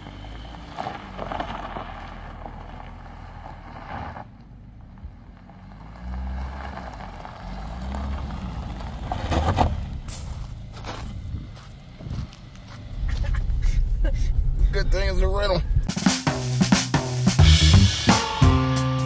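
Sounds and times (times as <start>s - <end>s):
tyres crunching over gravel: 0.0s - 13.9s
car engine: 0.0s - 18.1s.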